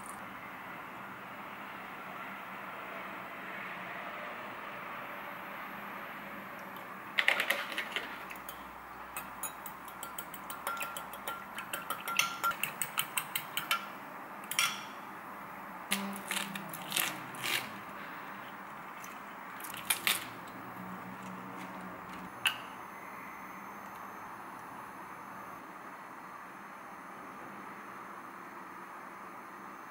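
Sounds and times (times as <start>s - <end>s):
spoon clinking against glass mug: 8.4s - 15.0s
lettuce leaves tearing: 15.9s - 17.8s.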